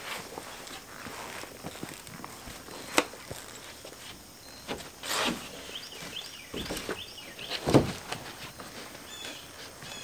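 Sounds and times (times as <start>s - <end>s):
small birds chirping: 2.6s - 7.8s, 8.4s - 10.0s
wooden panel knocks and thumps: 7.6s - 8.1s.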